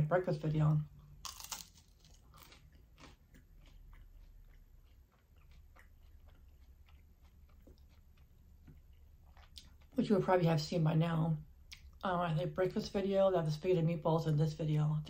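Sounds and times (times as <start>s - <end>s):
quiet crunchy chewing: 1.0s - 10.2s
crunchy bite into toast: 1.2s - 3.2s.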